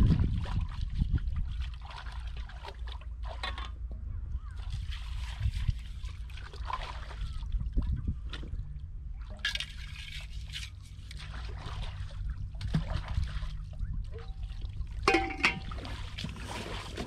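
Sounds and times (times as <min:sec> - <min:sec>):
water trickling and sloshing: 0:00.0 - 0:17.0
water splash: 0:14.4 - 0:17.0.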